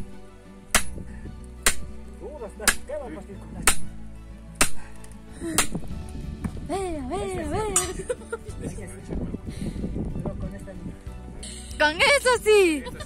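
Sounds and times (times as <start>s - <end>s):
background music: 0.0s - 13.0s
hammer striking metal: 0.7s - 1.0s, 1.6s - 2.0s, 2.6s - 2.9s, 3.6s - 3.9s, 4.6s - 4.8s.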